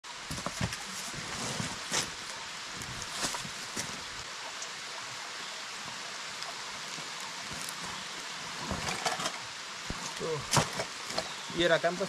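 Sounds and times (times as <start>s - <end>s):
rocky creek running: 0.1s - 12.0s
backpack and gear rustling: 0.3s - 4.1s.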